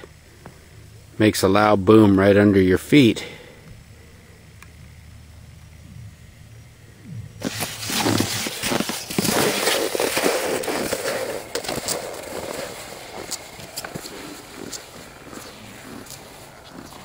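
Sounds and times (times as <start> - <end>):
skis crunching through snow: 7.4 - 17.0.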